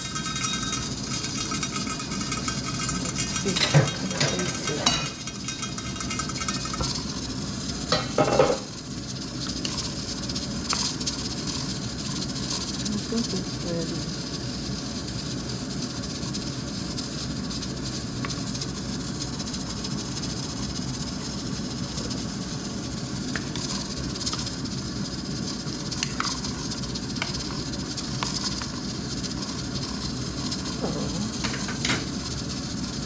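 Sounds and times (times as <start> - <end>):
ladle clicking against pot: 0.0 - 7.0
soup boiling in a pot: 0.0 - 33.0.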